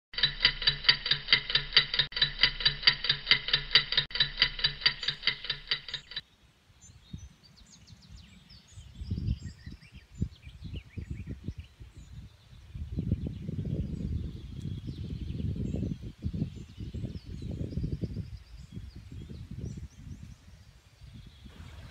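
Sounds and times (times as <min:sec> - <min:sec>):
rapid ringing ticking: 0:00.1 - 0:06.2
small birds chirping: 0:04.7 - 0:21.9
wind buffeting microphone: 0:06.8 - 0:21.9.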